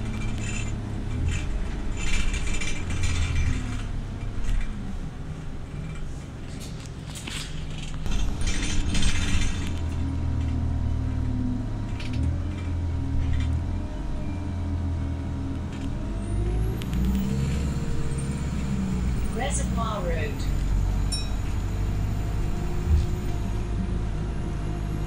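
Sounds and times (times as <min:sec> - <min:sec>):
interior rattles and creaks: 0:00.0 - 0:14.2, 0:20.3 - 0:23.6
bus engine droning: 0:00.0 - 0:25.0
rising whine: 0:20.1 - 0:24.2.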